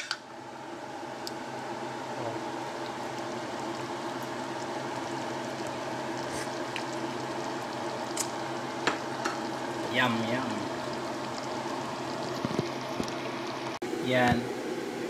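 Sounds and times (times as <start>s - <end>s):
pot of porridge bubbling: 1.1s - 13.8s.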